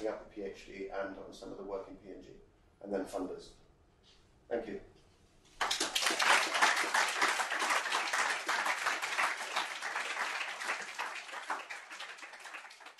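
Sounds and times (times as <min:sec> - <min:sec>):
audience applauding: 0:05.6 - 0:12.9.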